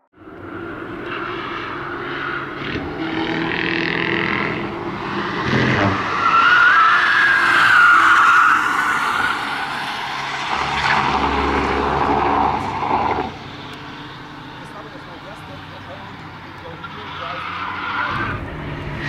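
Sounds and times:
car engine at high revs: 0.2 - 19.0
tyres squealing: 5.1 - 19.0.

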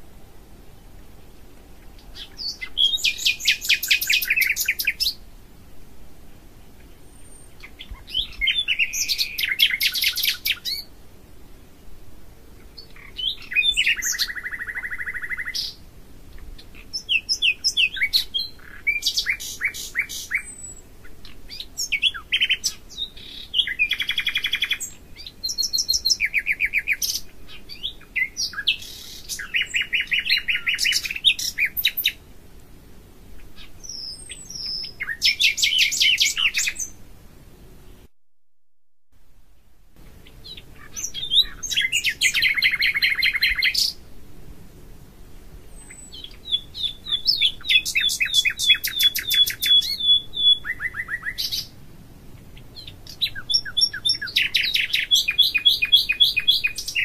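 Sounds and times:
songbird trilling: 1.9 - 5.2, 6.8 - 10.9, 12.6 - 15.8, 16.5 - 32.2, 33.4 - 37.0, 40.2 - 44.0, 45.7 - 51.8, 52.6 - 57.0.

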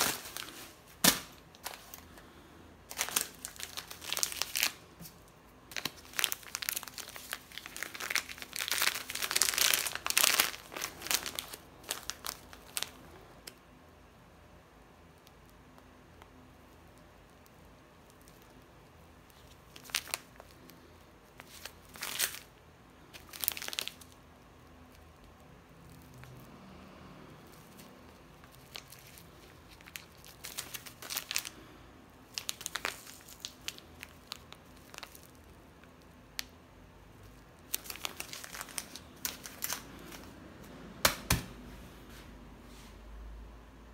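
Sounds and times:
plastic pouches crinkling: 0.0 - 13.6, 19.2 - 24.2, 27.4 - 36.5, 37.2 - 40.3.

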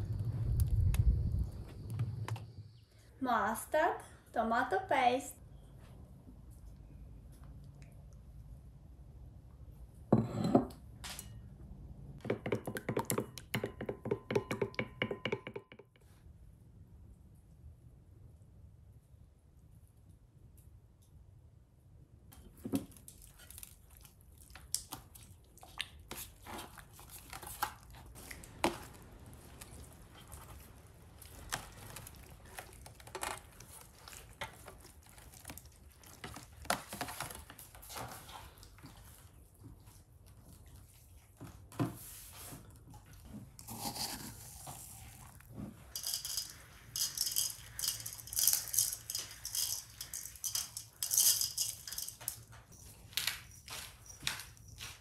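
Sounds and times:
food tapping in metal tray: 12.2 - 15.8
plastic wrap crinkling: 26.4 - 38.6.

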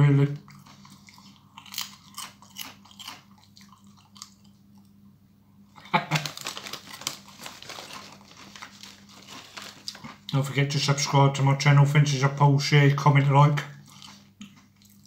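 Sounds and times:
crisp crunching: 0.6 - 4.5, 5.8 - 10.4
crackling and rustling: 5.9 - 10.3.

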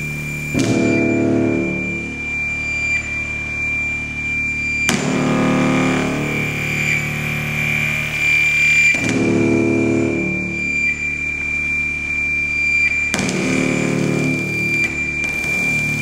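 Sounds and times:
low electronic tone: 0.0 - 16.0
steady high electronic tone: 0.0 - 16.0.

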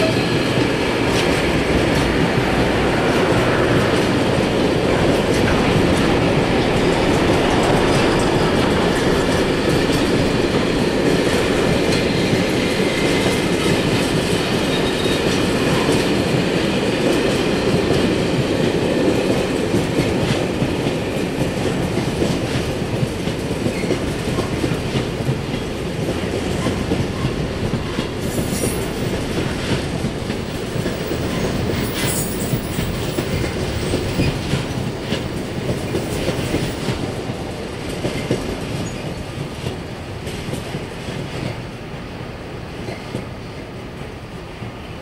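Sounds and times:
freight wagons rumbling on rails: 0.0 - 44.9
high-pitched wheel squeals: 14.7 - 15.2.

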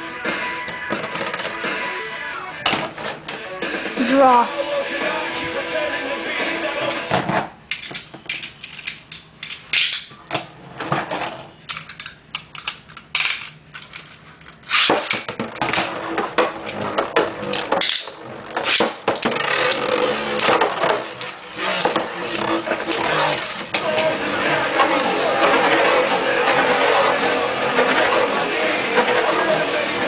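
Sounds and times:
spinning tops clashing rattle: 11.7 - 15.3, 17.4 - 28.4.

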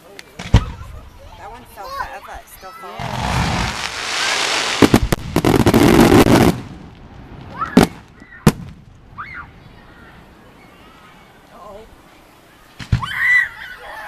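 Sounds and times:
firework hissing rush with crackling: 0.2 - 14.0
firework shells bursting: 3.0 - 8.9.

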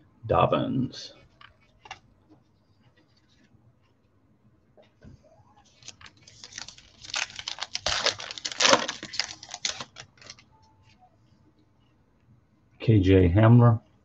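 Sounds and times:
foil wrapper crinkling and tearing: 5.7 - 10.4.

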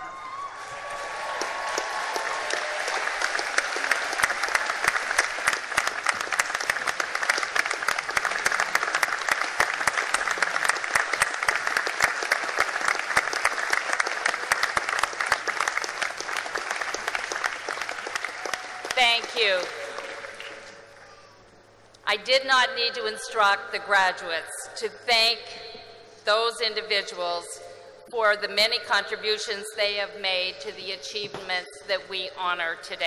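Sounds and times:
large crowd applauding: 0.0 - 21.1.

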